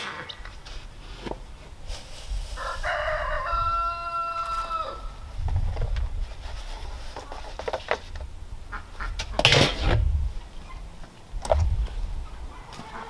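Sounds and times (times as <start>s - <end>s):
rooster crowing: 2.6s - 5.2s.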